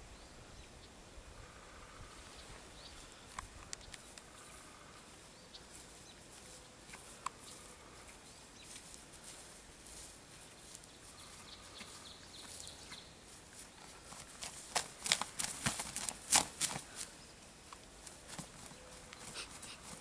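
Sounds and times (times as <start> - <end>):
footsteps swishing through grass: 4.5 - 17.2, 18.0 - 20.0
faint bird chirps: 10.4 - 13.2.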